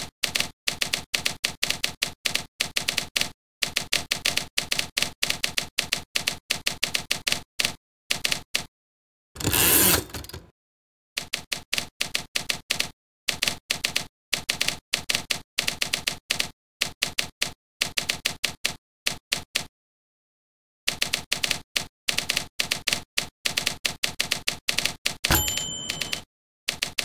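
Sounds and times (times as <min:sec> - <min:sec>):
typewriter key clacks: 0:24.8 - 0:27.0.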